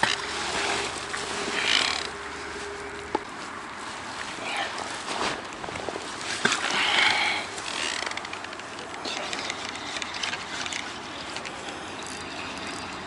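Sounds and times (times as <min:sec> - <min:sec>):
road traffic hum: 0:00.0 - 0:13.0.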